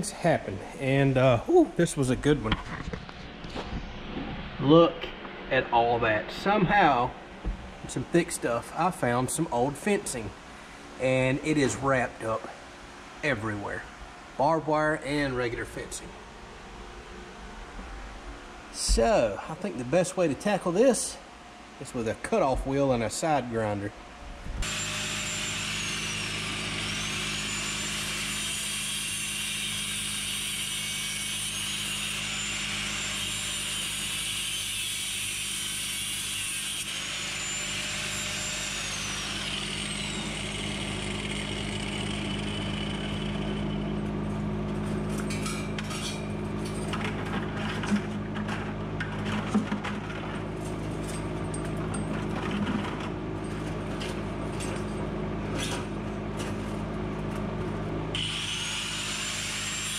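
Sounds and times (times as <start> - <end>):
steady low hum: 0.0 - 24.7
angle grinder cutting wire: 24.6 - 44.1, 58.2 - 59.9.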